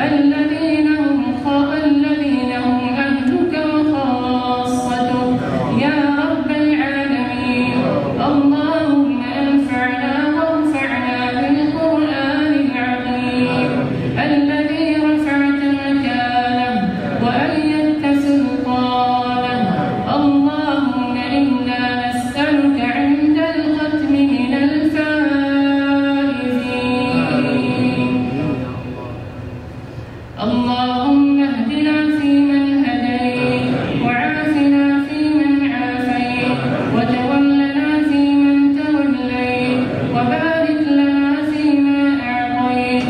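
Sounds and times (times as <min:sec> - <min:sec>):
man chanting into a microphone: 0:04.6 - 0:16.2, 0:22.8 - 0:29.2, 0:32.8 - 0:43.0.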